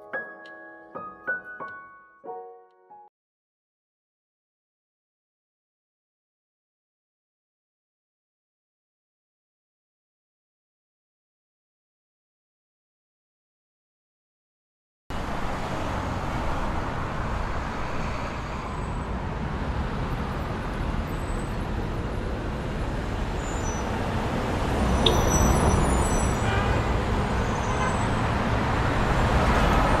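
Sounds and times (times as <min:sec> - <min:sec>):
street traffic noise: 0:15.1 - 0:30.0.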